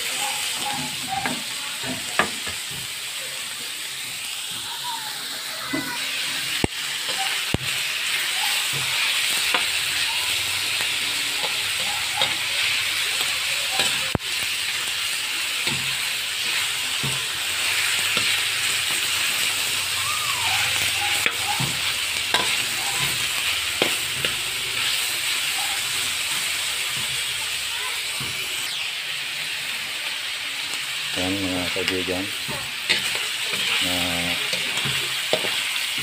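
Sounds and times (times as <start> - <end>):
meat sizzling in a wok: 0.0 - 36.0
metal spatula scraping a pan: 20.6 - 27.1.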